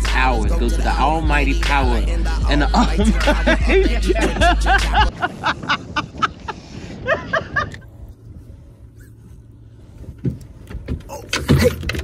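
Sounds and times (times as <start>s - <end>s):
wind rumble on microphone: 2.9s - 12.0s.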